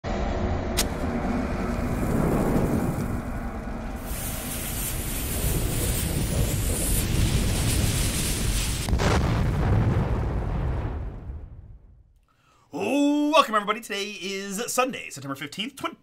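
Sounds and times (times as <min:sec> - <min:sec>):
deep thunderous rumble: 0:00.1 - 0:12.2
hiss: 0:01.8 - 0:08.9.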